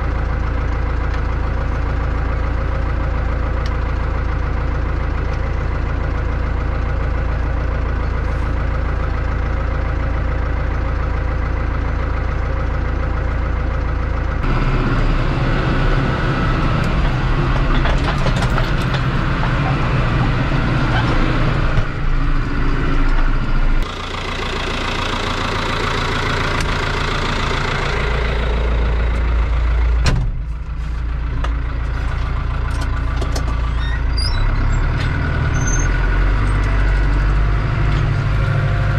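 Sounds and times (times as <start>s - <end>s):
tractor diesel engine: 0.0s - 38.9s.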